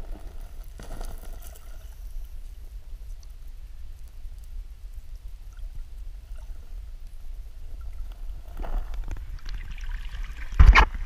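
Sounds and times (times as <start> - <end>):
muffled underwater river rumble: 0.0 - 11.0
water swishing and splashing: 5.4 - 11.0.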